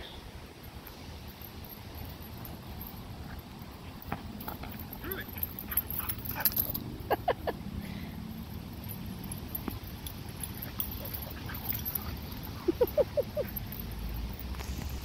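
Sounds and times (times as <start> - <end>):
dog yipping: 10.6 - 13.9.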